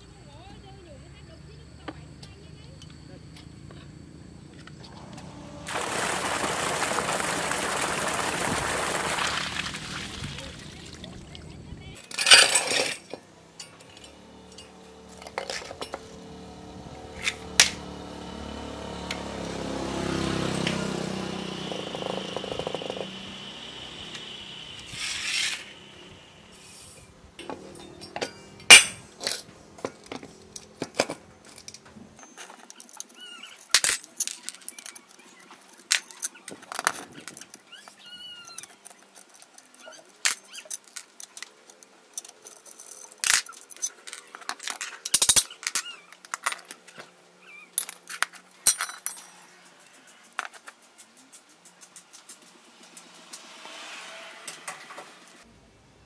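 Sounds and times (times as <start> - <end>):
metal parts clinking on concrete: 12.0 - 16.3, 27.4 - 53.1.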